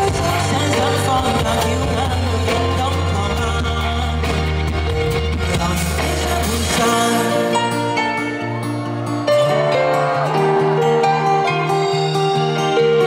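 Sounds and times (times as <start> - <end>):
man singing pop song: 0.0 - 8.7
band accompaniment: 0.0 - 13.0.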